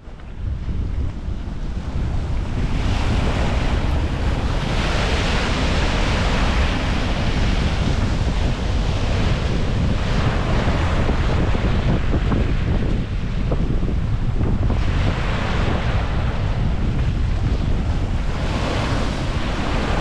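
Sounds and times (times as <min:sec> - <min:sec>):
wind buffeting microphone: 0:00.0 - 0:20.0
waves breaking on pebble beach: 0:01.8 - 0:20.0.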